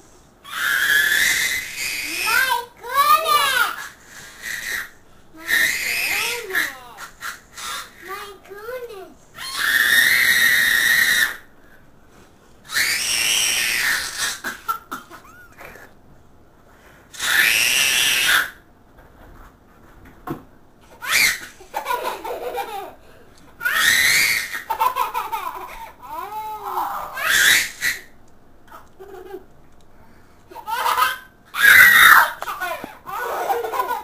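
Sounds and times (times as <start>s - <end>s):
toddler and baby shrieking: 0.4s - 8.0s, 9.4s - 11.4s, 12.7s - 14.5s, 17.2s - 18.6s, 21.0s - 21.5s, 23.6s - 24.8s, 26.1s - 28.1s, 30.6s - 34.0s
children laughing: 5.4s - 8.0s, 13.8s - 16.0s, 21.2s - 23.0s, 23.6s - 27.8s, 28.7s - 29.5s, 30.5s - 34.0s.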